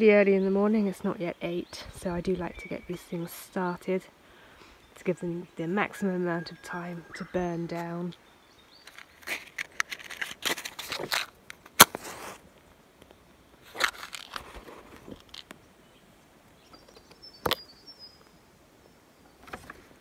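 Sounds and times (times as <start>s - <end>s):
twigs and cardboard rustling: 8.8s - 15.6s.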